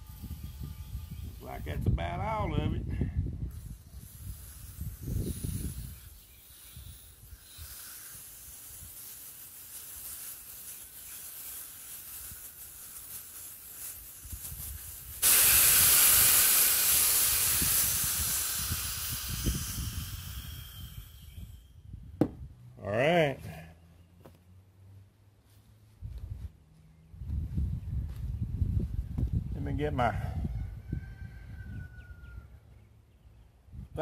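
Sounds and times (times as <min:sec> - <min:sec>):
aerosol gas hissing into tire: 0:03.5 - 0:21.8.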